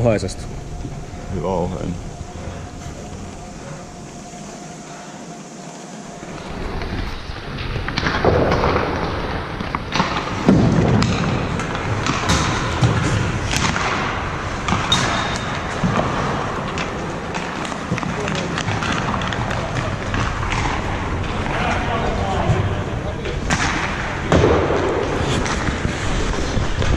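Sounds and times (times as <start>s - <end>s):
skates scraping ice: 6.2s - 22.6s, 23.4s - 26.9s
pucks striking sticks and boards: 7.6s - 22.7s, 23.4s - 26.9s.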